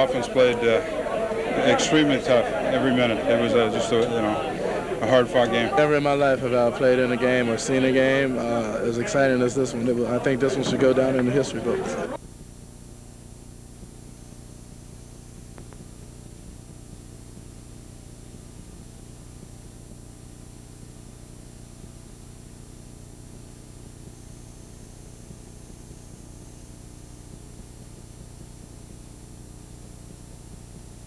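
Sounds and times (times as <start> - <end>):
low electrical hum: 0.0 - 31.0
tape hiss: 0.0 - 31.0.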